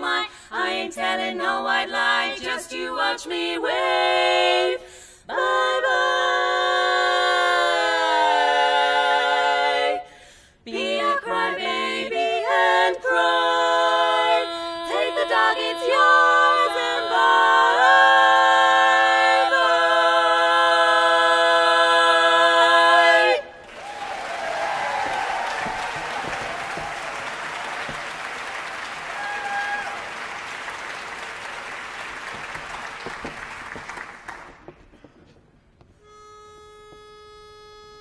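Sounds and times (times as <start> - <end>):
women singing a cappella harmony: 0.0 - 23.6
applause: 23.6 - 34.9.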